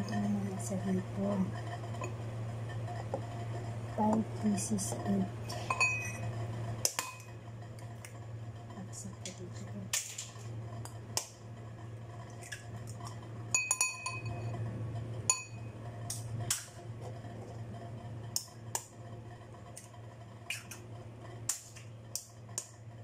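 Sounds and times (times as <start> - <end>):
ceramic bowl clinking: 5.5 - 6.2, 13.6 - 14.5.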